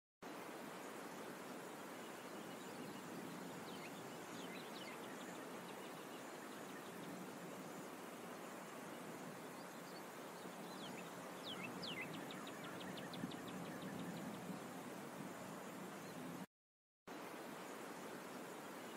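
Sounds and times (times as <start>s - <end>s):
outdoor background hiss: 0.2s - 16.5s, 17.1s - 18.9s
small birds chirping: 0.8s - 16.5s.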